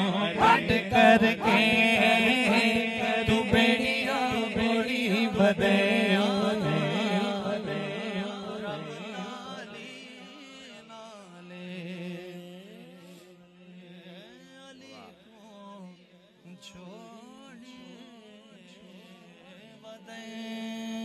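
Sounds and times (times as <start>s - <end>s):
man singing gliding melody: 0.0s - 12.4s.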